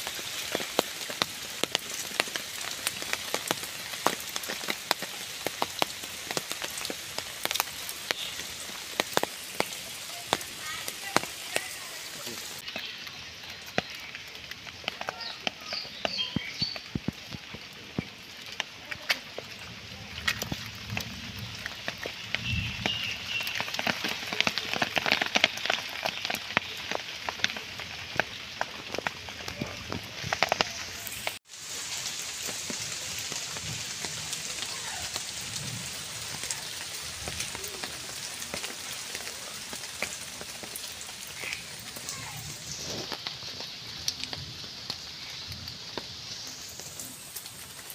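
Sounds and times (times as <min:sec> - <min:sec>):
sharp taps and drips: 0:00.0 - 0:31.4, 0:32.1 - 0:42.4
rain on wet ground and foliage: 0:00.0 - 0:47.9.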